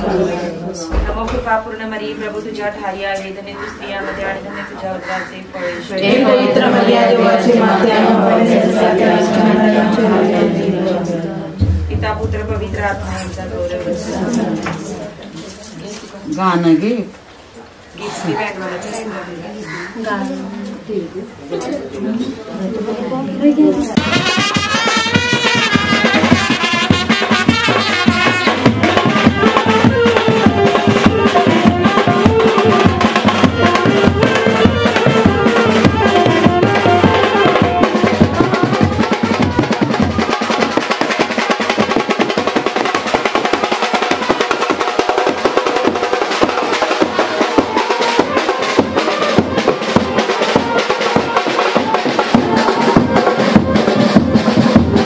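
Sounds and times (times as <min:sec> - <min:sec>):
snare and bass drumming: 0:11.5 - 0:14.2, 0:24.0 - 0:55.0
brass melody: 0:23.9 - 0:55.0.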